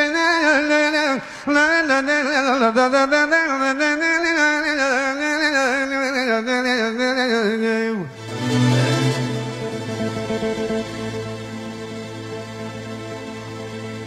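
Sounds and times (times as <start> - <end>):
man singing wordless melody: 0.0 - 8.2.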